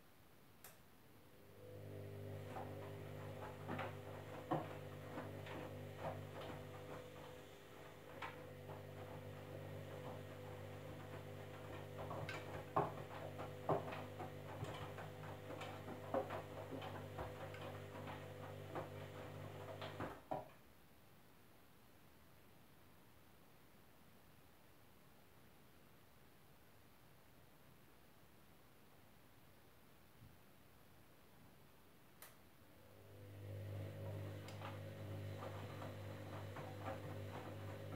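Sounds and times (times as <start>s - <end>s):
washing machine motor hum: 1.3s - 20.4s, 32.7s - 37.9s.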